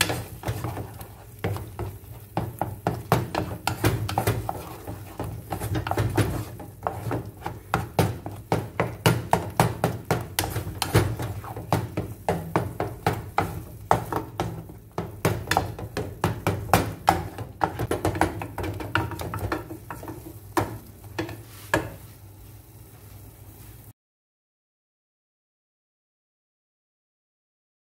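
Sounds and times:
wooden spatula tapping pan: 0.0s - 22.1s.

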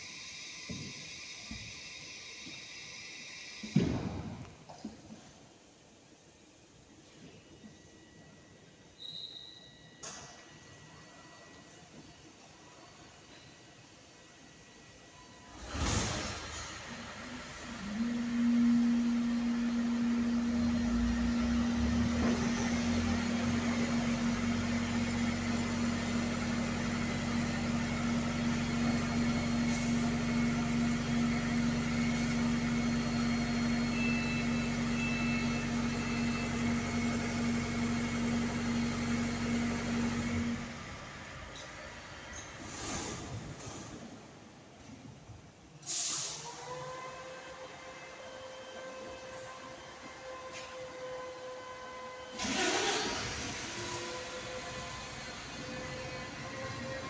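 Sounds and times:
bus engine droning: 15.5s - 43.0s, 45.8s - 57.0s.

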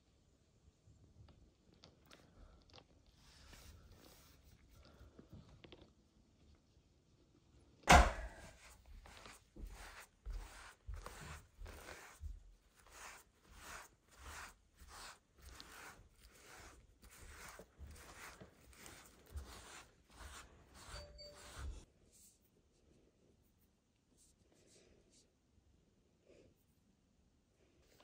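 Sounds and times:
glove brushing cat fur: 8.4s - 22.6s.

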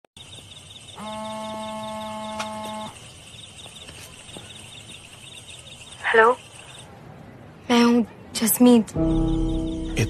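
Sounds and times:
steady electronic tone: 0.2s - 6.9s
faint rapid ticking: 0.2s - 7.0s.

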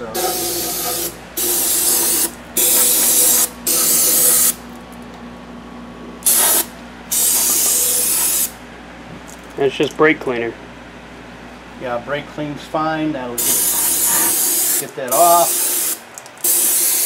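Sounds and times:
aerosol can spraying: 0.2s - 4.6s, 6.3s - 8.5s, 13.4s - 17.0s.

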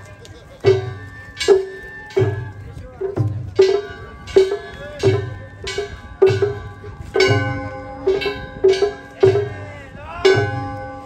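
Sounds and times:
taiko drum thumps: 0.6s - 11.0s
metal gongs struck: 3.6s - 11.0s.

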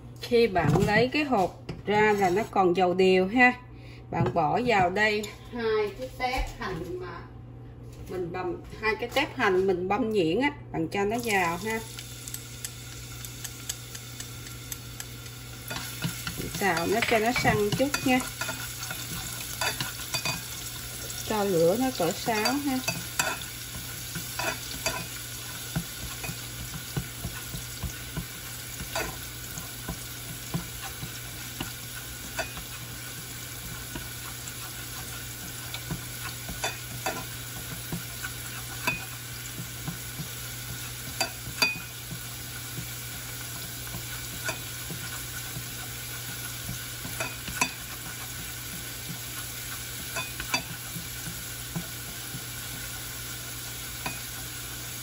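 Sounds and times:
onions sizzling in oil: 11.2s - 55.0s
chopsticks tapping and scraping pan: 13.1s - 55.0s.

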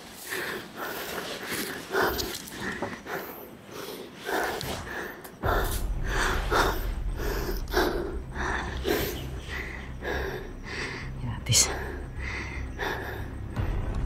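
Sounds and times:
man panting: 11.8s - 13.6s.

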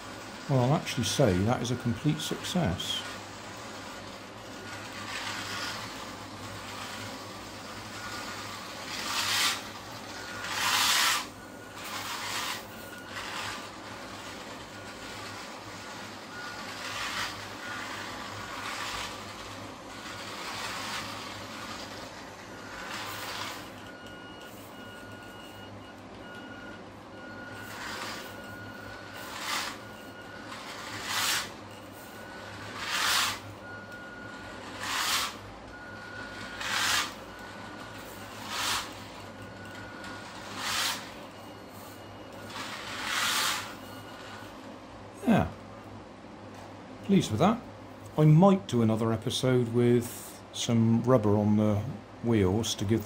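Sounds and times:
toy car motor whirring: 0.0s - 25.4s, 27.5s - 41.3s, 42.3s - 44.5s.

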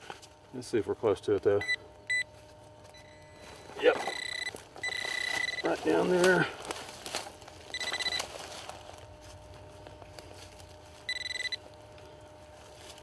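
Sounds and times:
metal detector beeps: 1.6s - 2.3s, 2.9s - 6.0s, 7.7s - 8.3s, 11.1s - 11.6s.

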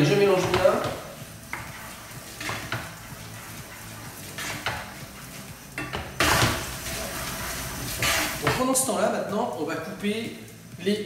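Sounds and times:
onions sizzling in butter: 0.0s - 9.0s
spoon scraping pot: 1.5s - 8.5s.

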